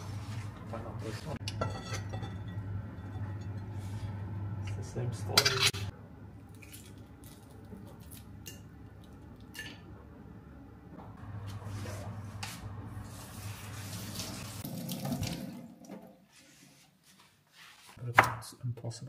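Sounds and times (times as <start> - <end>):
steady low hum: 0.0 - 13.7.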